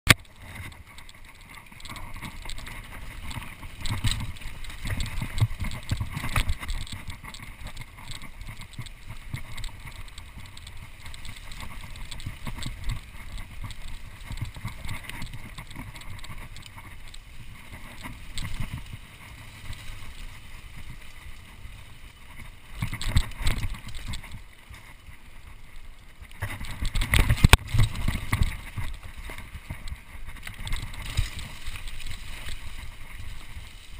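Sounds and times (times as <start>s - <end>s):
bike rattling over bumps: 0.1s - 33.9s
bike tyre noise on dirt: 0.1s - 33.9s
wind on microphone: 26.3s - 33.9s.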